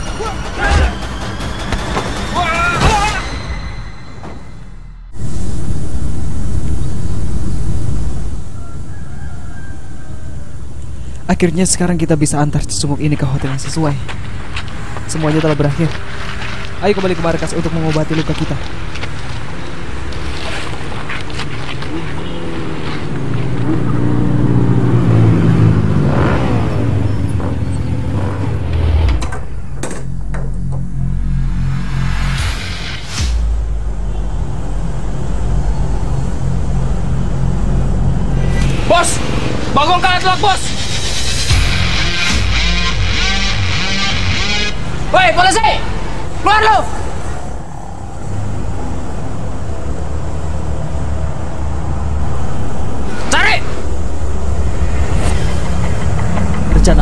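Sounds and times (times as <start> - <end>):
vehicle engine passing by: 19.7 - 29.2, 33.1 - 45.2
low outdoor rumble: 33.1 - 53.0, 53.8 - 57.0.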